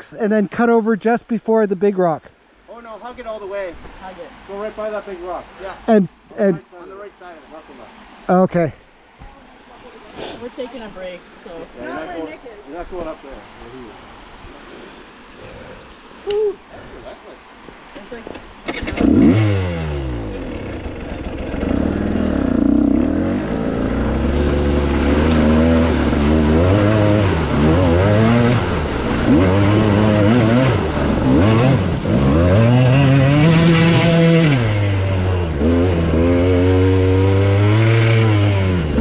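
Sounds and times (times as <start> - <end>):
dirt bike engine revving: 18.7 - 39.0
water spraying and splashing: 23.3 - 35.0.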